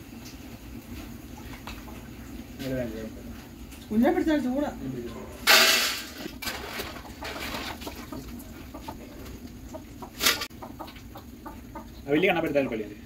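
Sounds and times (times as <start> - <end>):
hens clucking: 6.2 - 12.7.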